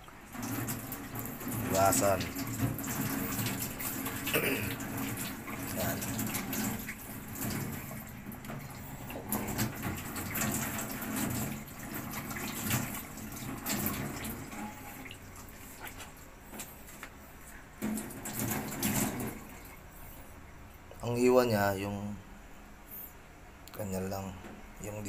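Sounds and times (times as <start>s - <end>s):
water splashing: 0.0s - 17.0s, 17.8s - 19.9s
tap water running into sink: 0.0s - 17.1s, 17.8s - 19.8s.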